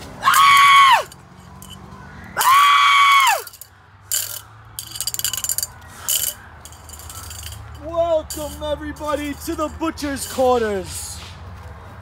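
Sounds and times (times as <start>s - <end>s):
long high scream: 0.2s - 1.1s, 2.4s - 3.5s
chain-link fence rattling: 3.2s - 10.4s.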